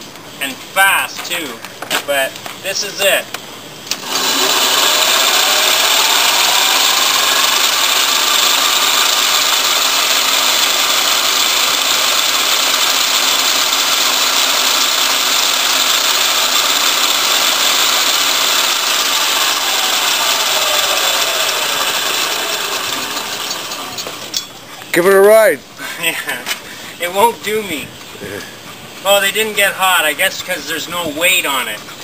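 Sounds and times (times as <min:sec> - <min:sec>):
electric motor whine: 0:03.9 - 0:24.3.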